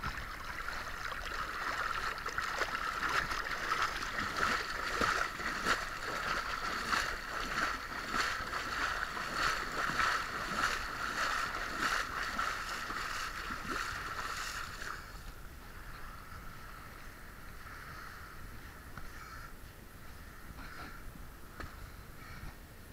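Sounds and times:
water splashing from wading: 0.0 - 15.2.

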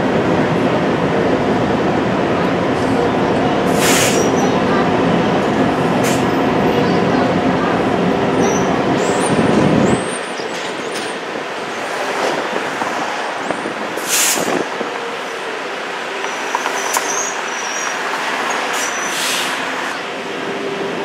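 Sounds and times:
streetcar wheels rumbling: 0.0 - 21.0
short air hisses: 3.8 - 4.3, 14.0 - 14.5
high wheel squeals: 16.2 - 19.7.

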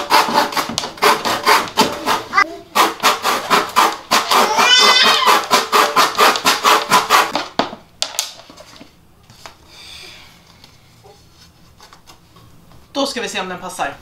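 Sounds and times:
handsaw cutting wooden board: 0.0 - 7.4.

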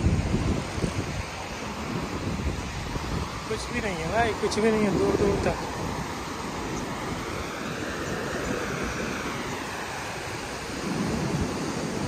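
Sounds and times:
sea surf washing onto beach: 0.0 - 12.0
wind rumbling on microphone: 0.0 - 12.0.

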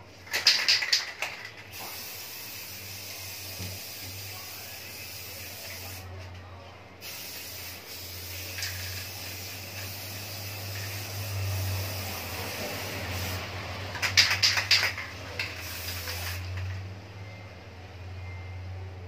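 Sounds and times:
clatter of clicks: 0.3 - 1.7, 14.0 - 15.6
aerosol spray can hissing: 1.7 - 6.1, 7.0 - 16.7.

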